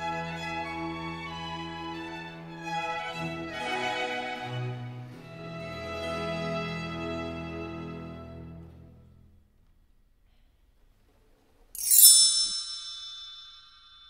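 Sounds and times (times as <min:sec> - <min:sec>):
string background music: 0:00.0 - 0:09.3
bright downward sweeping chime: 0:11.8 - 0:14.0.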